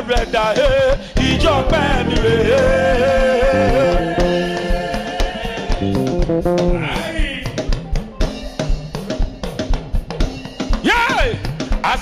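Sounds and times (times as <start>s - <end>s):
steady drum beat: 0.0s - 12.0s
plucked guitar: 1.2s - 4.8s, 5.7s - 7.1s
bass line: 1.2s - 5.0s, 5.7s - 7.4s.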